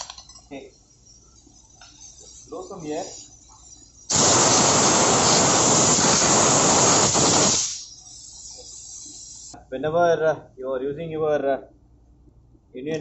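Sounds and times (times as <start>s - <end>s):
compressed air hissing: 0.8s - 9.6s.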